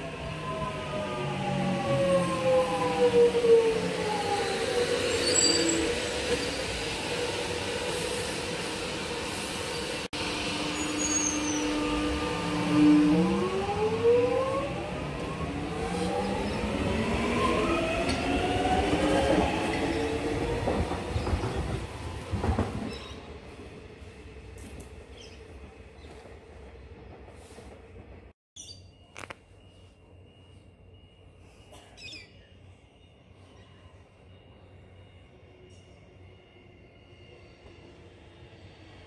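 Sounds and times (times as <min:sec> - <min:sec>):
electric train motor whine: 0:09.1 - 0:20.3.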